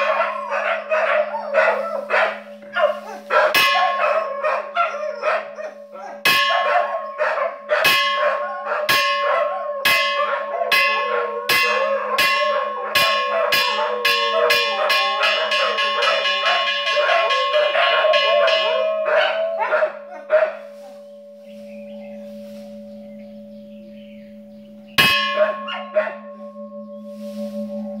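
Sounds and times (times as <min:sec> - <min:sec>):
dogs howling: 0:00.0 - 0:20.7, 0:25.3 - 0:26.2
bronze bell struck by hand: 0:01.8 - 0:04.6, 0:06.2 - 0:19.7, 0:20.6 - 0:28.0.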